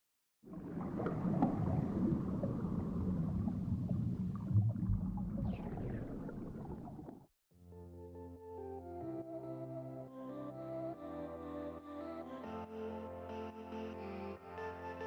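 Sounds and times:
underwater air bubbling: 0.4 - 7.3.

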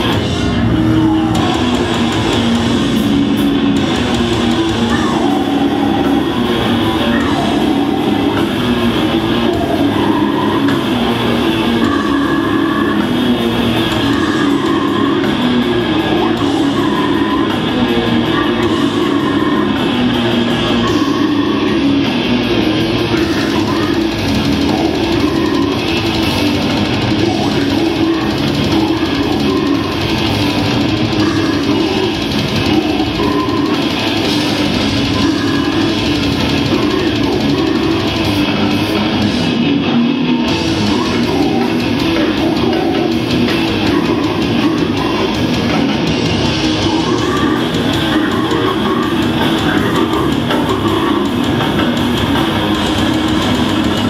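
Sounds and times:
bass guitar: 0.0 - 54.0
distorted electric guitars: 0.0 - 54.0
drum kit: 0.0 - 54.0
vocalist growling: 0.0 - 54.0.

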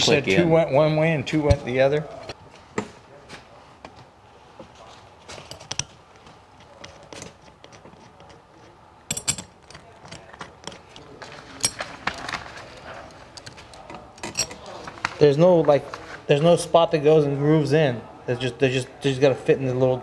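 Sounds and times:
small clicks and clinks of parts: 5.4 - 5.9, 6.6 - 12.4, 13.1 - 14.8.

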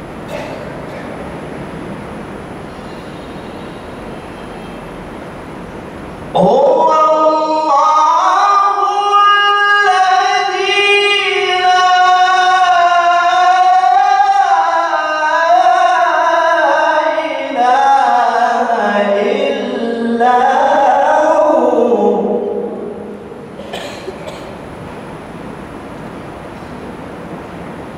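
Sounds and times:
man chanting into a microphone: 6.3 - 23.4.

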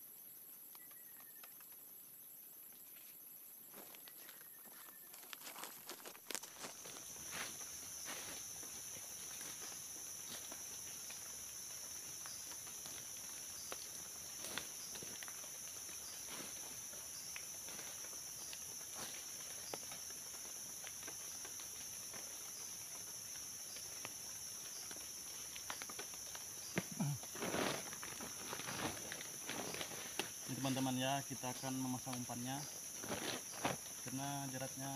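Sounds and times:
insects droning: 0.0 - 34.9
dry leaves crackling: 5.2 - 22.2, 23.8 - 30.8.

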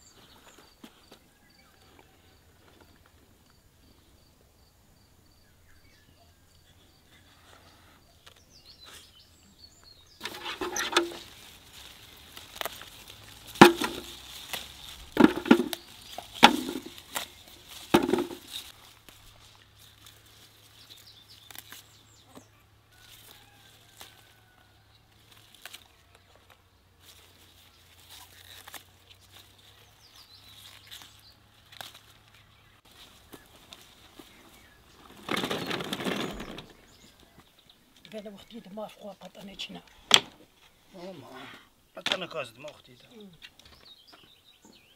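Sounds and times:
pepper plants rustling: 7.0 - 41.5
footsteps through plants: 8.5 - 38.2
sharp crunches: 10.2 - 19.3.

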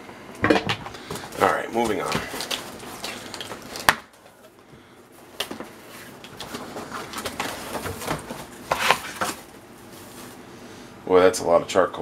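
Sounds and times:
cardboard flaps tapping and rustling: 0.5 - 4.2, 5.4 - 10.3.

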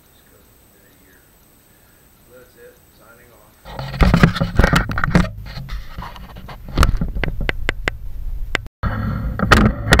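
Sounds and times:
steady low hum: 0.0 - 10.0
sharp knocks and clicks: 3.7 - 8.7.

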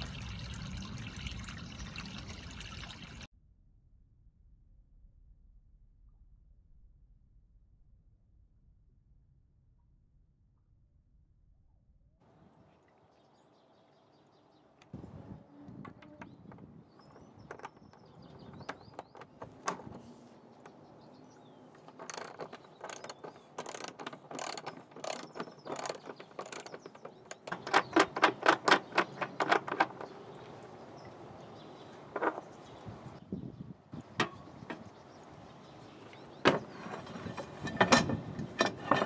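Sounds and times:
ratchet wrench clicking: 22.9 - 26.6.

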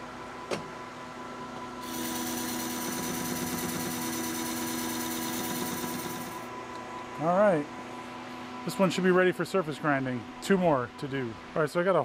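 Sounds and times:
lathe humming: 1.8 - 6.5.

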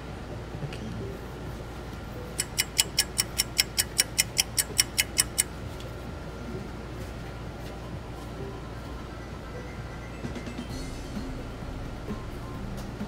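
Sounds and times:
rapid sharp high clicks: 2.4 - 5.6.

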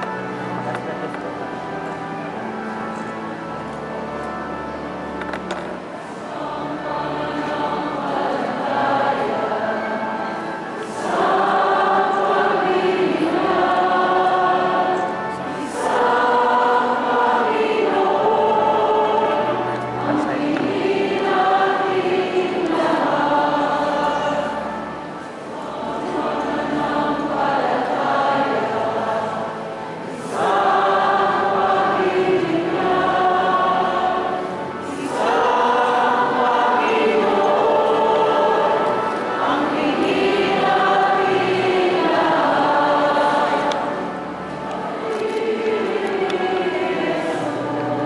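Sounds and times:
choir singing: 0.0 - 48.0.

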